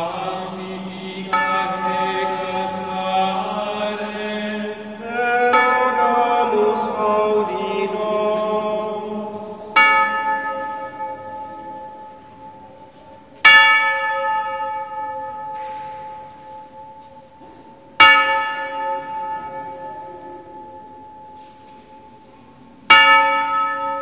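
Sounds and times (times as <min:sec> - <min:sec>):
chanted singing: 0:00.0 - 0:10.3.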